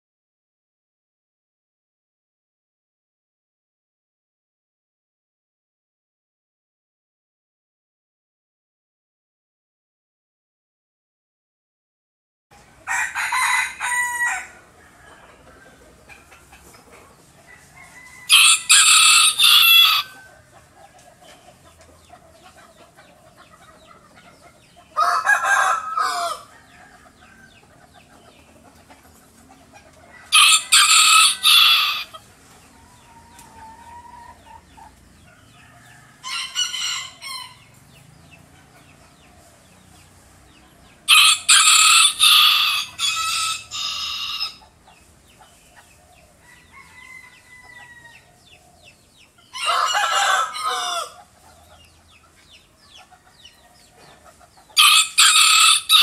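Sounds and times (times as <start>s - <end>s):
rooster crowing: 12.8s - 15.8s, 17.4s - 20.5s, 25.0s - 27.6s, 30.1s - 32.2s, 35.4s - 37.7s, 41.1s - 44.6s, 46.4s - 48.4s, 49.5s - 51.3s, 54.8s - 56.0s.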